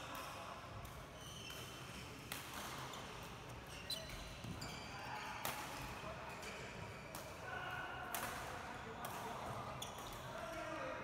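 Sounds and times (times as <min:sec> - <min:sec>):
rackets hitting shuttlecock: 0:00.8 - 0:02.9, 0:08.1 - 0:09.4
shoes squeaking on court floor: 0:01.2 - 0:05.2, 0:09.8 - 0:10.2.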